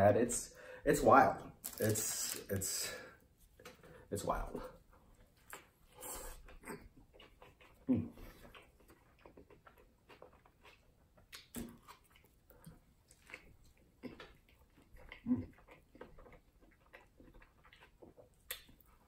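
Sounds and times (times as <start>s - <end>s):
chewing mouth clicks: 5.5s - 19.0s
low mouth noises: 7.7s - 8.4s.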